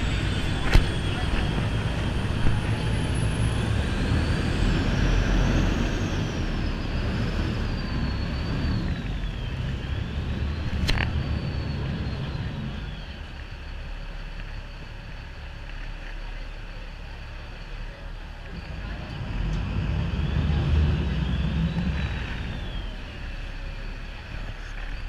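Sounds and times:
boat engine rumbling: 0.0s - 25.0s
wind: 0.0s - 25.0s.

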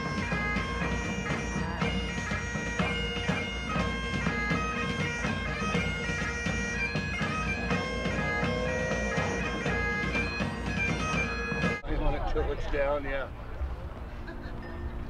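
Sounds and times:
bagpipe tune over drone: 0.0s - 11.8s.

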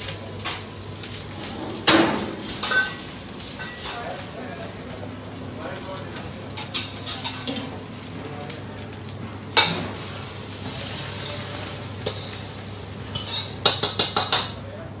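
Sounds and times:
wok sizzling: 0.0s - 14.6s.

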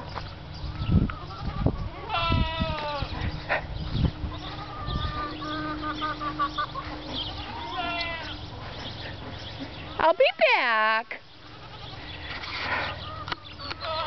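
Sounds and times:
low thumping footsteps: 0.0s - 10.0s.

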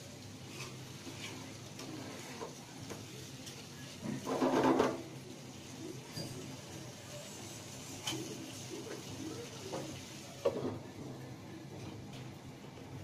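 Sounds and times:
faint kitchen background: 0.0s - 13.0s
frying pan scraping on grate: 0.5s - 1.5s, 4.2s - 5.0s.

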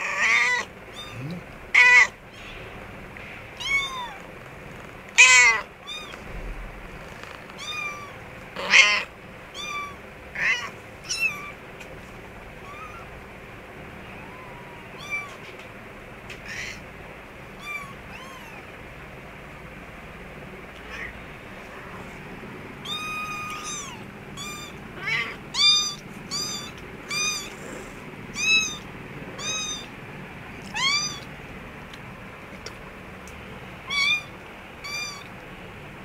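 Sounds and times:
kittens mewing: 0.0s - 2.6s, 3.5s - 4.4s, 5.1s - 6.2s, 7.0s - 11.7s, 12.5s - 13.2s, 14.0s - 15.6s, 16.3s - 16.9s, 17.5s - 18.7s, 20.8s - 21.2s, 22.8s - 30.0s, 30.6s - 31.3s, 33.8s - 35.4s.

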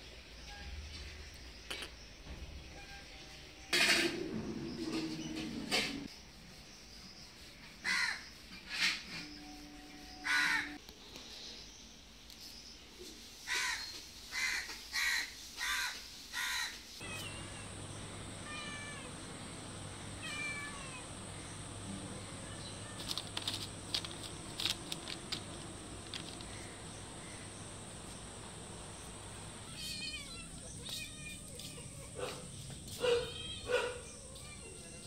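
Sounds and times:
crow cawing: 14.4s - 16.8s
cats meowing: 17.0s - 26.5s, 29.4s - 35.0s
steady low hum: 17.0s - 30.8s.

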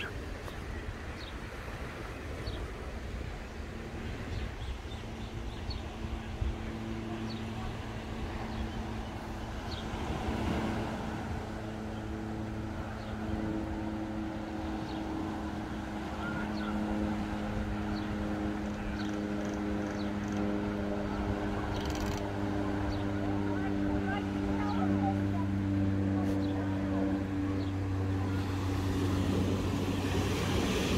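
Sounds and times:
engine drone: 0.0s - 30.9s
small birds chirping: 17.9s - 20.5s.

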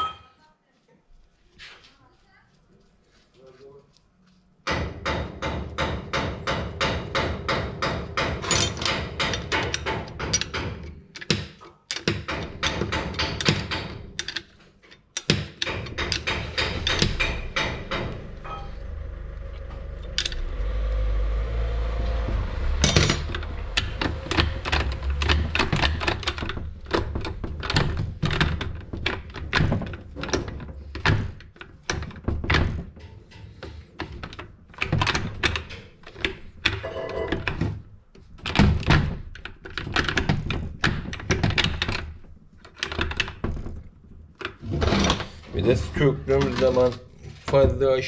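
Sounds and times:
metal knocks and clunks: 4.7s - 47.9s
low rumble: 16.2s - 29.0s.

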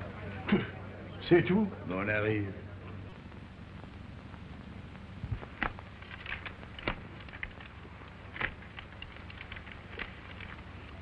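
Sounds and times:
old film soundtrack hum and hiss: 0.0s - 11.0s
playing cards and glasses clicking: 5.3s - 11.0s.

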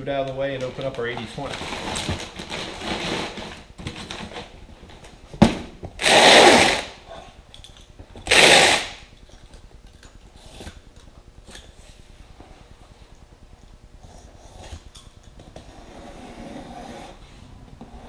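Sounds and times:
packing paper rustling: 0.4s - 4.5s
cardboard box dragged across bench: 15.6s - 18.0s.

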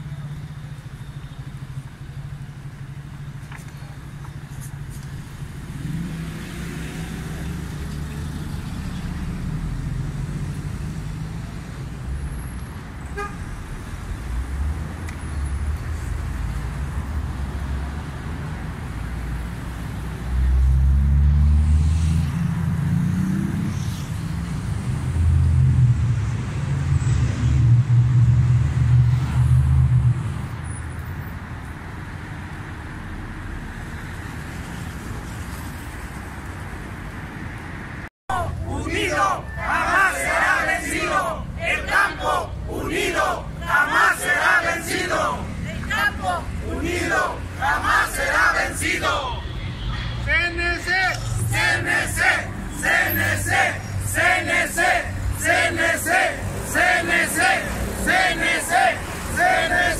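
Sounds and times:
vehicle engines passing: 0.0s - 59.9s
car horn toot: 13.0s - 13.5s.

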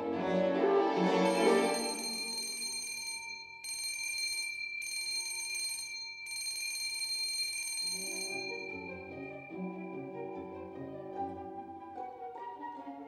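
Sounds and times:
low orchestral music: 0.0s - 2.1s, 8.7s - 13.0s
electric bell ringing: 1.2s - 11.0s.

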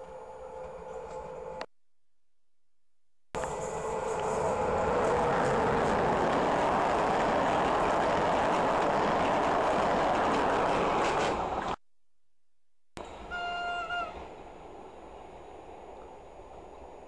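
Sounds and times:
train wheels rumbling on rails: 3.4s - 11.8s.

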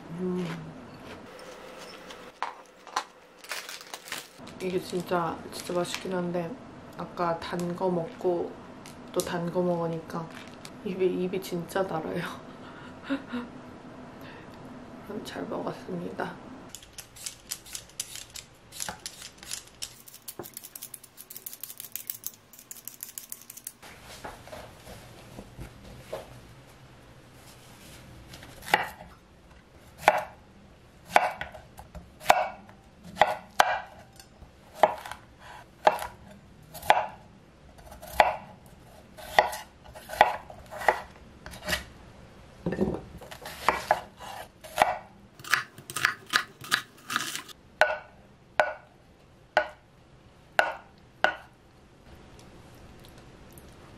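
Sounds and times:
vegetable peeler scraping potato: 17.0s - 23.8s, 43.3s - 47.6s.

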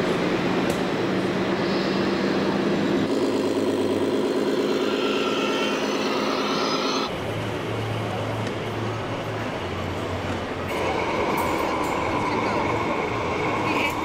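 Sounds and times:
diesel truck engine sound: 0.0s - 14.0s.

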